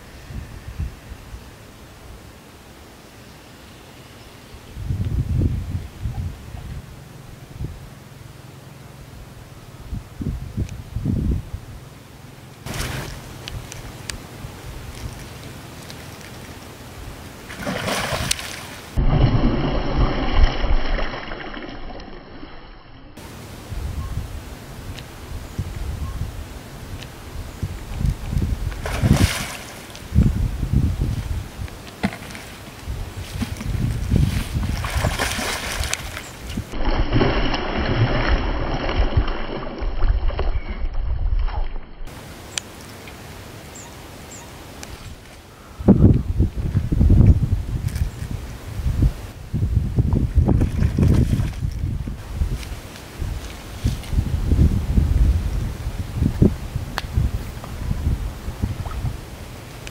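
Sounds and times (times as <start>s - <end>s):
fish splashing in water: 17.5s - 21.7s, 28.8s - 30.0s, 34.2s - 40.4s.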